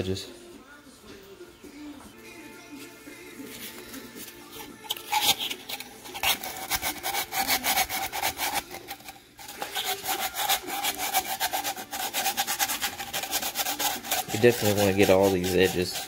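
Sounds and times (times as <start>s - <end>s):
sandpaper scraping plastic pipe: 4.9s - 16.0s.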